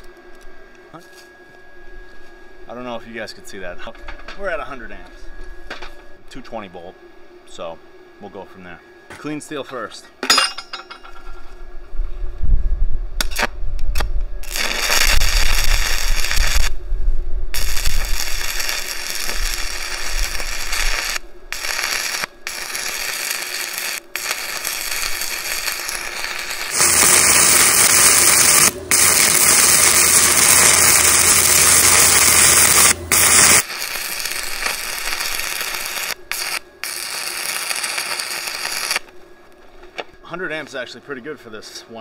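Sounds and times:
welding arc crackling: 13.2 - 16.8, 17.5 - 39.1.

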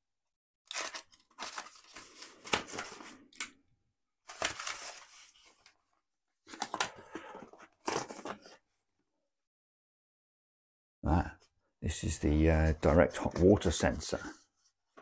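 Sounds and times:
tape tearing: 0.7 - 3.0
cardboard rustling: 6.5 - 8.7.

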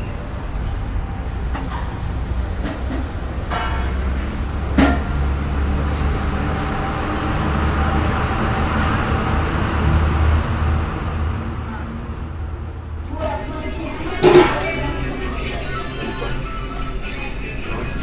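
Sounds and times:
distant road traffic rumble: 0.0 - 18.0.

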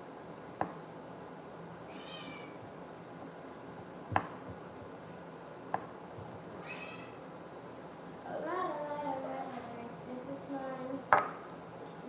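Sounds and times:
cat mewing: 1.9 - 2.6, 6.6 - 7.2.

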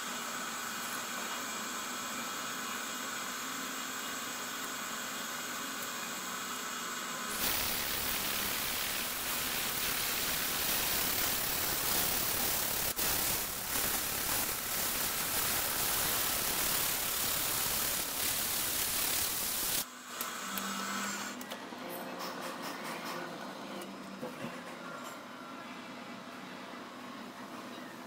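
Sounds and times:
compressed air hissing: 7.3 - 19.8
milling machine spindle running: 7.3 - 19.8.

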